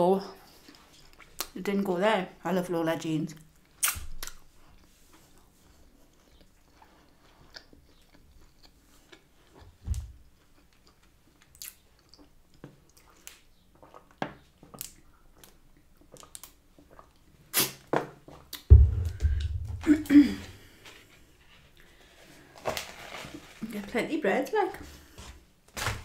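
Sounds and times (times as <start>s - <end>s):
person chewing food: 0.4s - 1.5s, 3.5s - 19.5s
soft low thump: 18.7s - 20.1s.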